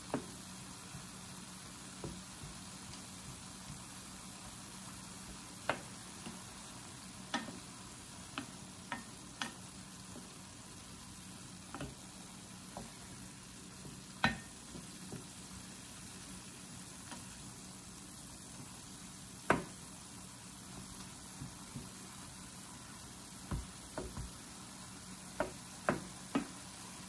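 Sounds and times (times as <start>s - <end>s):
food sizzling in a pan: 0.0s - 27.0s
spoon knocking against pan: 7.3s - 7.6s, 8.3s - 9.6s, 13.9s - 15.3s.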